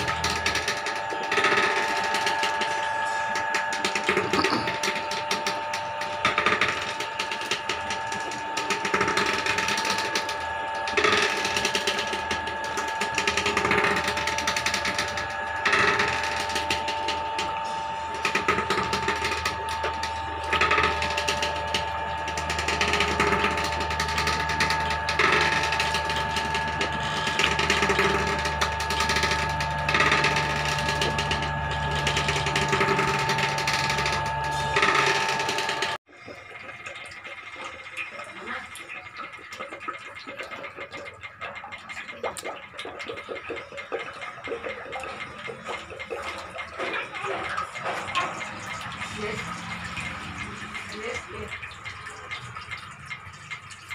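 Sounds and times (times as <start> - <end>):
wooden pestle grinding: 0.0 - 36.0
mechanical whine: 0.0 - 53.9.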